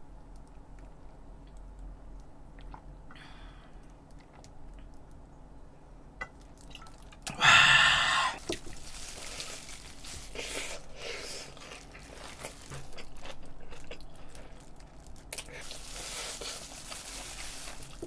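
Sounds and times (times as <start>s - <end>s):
crunching fried chicken: 8.4s - 18.0s
wet chewing: 10.2s - 18.0s.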